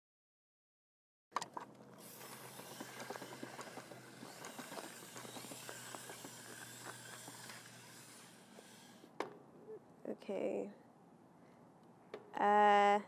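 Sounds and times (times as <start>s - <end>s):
faint outdoor hiss: 1.4s - 13.0s
footsteps on dry leaves: 2.0s - 8.8s.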